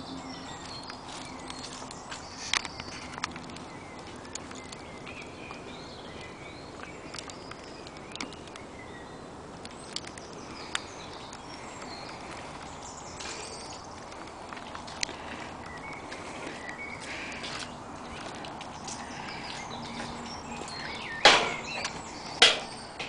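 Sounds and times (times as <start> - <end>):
birds singing: 0.0 - 23.0.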